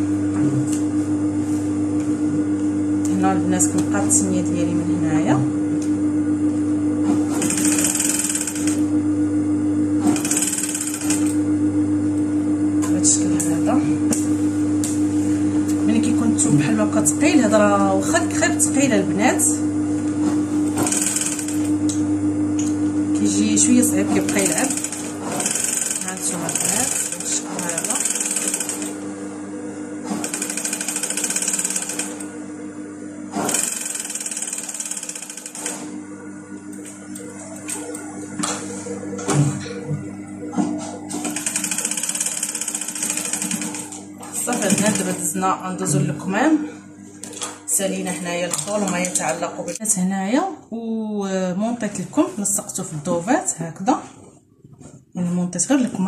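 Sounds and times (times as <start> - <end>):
steady machine hum: 0.0 - 56.0
sewing machine stitching: 7.3 - 8.8, 10.0 - 11.4, 20.7 - 21.6, 24.2 - 28.9, 30.2 - 32.2, 33.4 - 35.8, 41.3 - 45.3.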